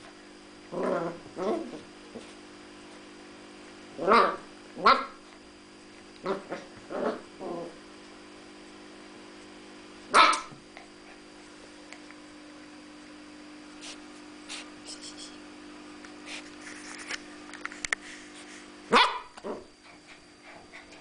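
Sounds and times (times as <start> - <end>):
puppy barking: 10.1 - 10.5, 18.9 - 19.4.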